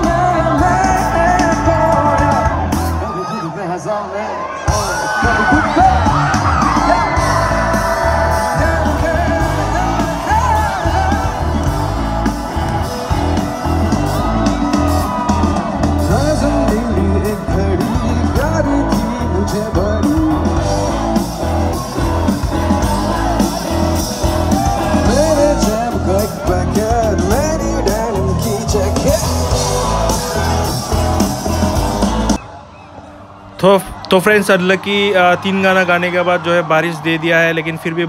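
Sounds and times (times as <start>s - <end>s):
bass guitar: 0.0s - 3.2s, 4.7s - 32.4s
drums: 0.0s - 3.8s, 4.6s - 33.2s
male singer: 0.0s - 11.5s, 16.0s - 20.6s, 24.8s - 30.7s
crowd whooping and shouting: 0.0s - 38.0s.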